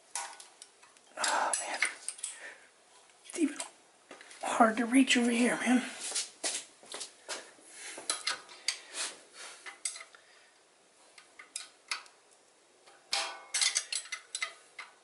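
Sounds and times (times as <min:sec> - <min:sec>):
metal wrench clinking on nuts: 0:13.1 - 0:14.6.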